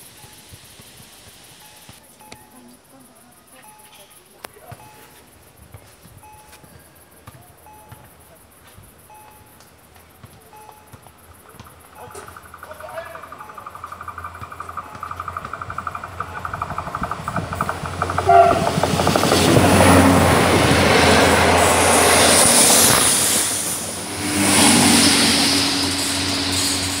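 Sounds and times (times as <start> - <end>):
train rushing over crossing: 10.5 - 27.0
level-crossing bell ringing: 13.2 - 13.9
train horn: 18.2 - 20.3, 24.2 - 27.0.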